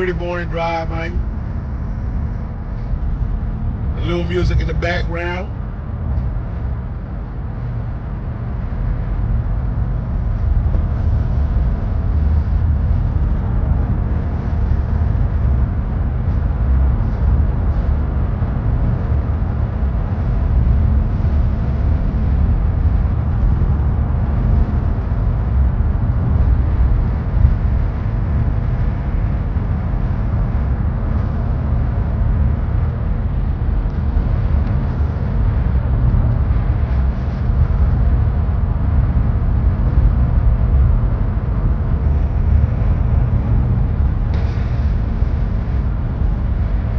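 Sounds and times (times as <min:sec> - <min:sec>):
car engine rumble in cabin: 0:00.0 - 0:46.9.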